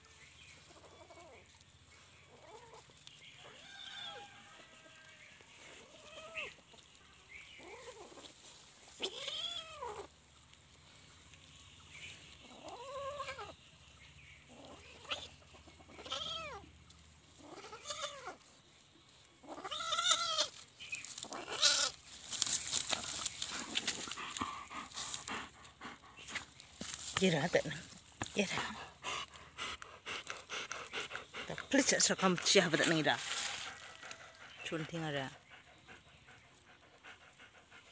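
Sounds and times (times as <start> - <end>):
scratchy rustling: 31.6 - 34.2.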